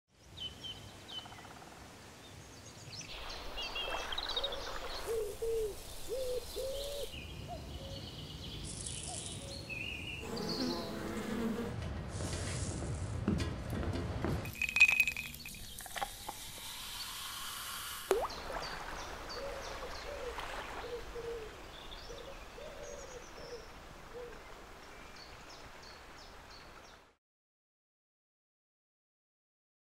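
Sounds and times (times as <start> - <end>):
birdsong: 0.2 - 11.4, 18.2 - 27.1
buzzing insects: 10.2 - 11.8.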